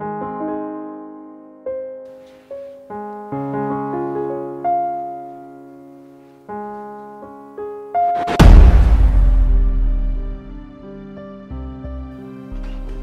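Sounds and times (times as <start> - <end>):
soft piano music: 0.0 - 8.4, 9.6 - 13.0
deep boom: 8.2 - 11.0.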